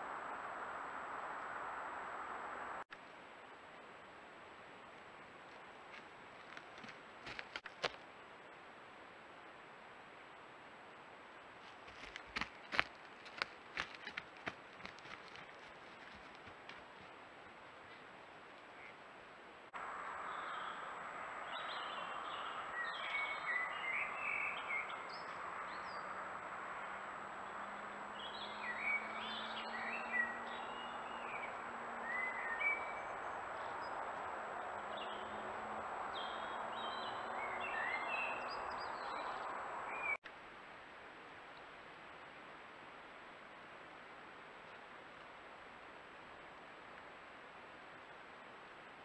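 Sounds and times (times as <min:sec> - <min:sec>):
songbirds chirping: 0:09.4 - 0:40.3.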